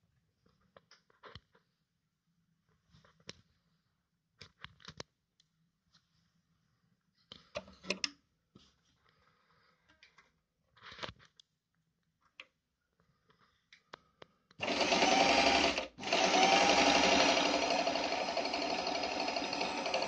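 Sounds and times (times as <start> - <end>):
sewing machine stitching: 14.6 - 20.0.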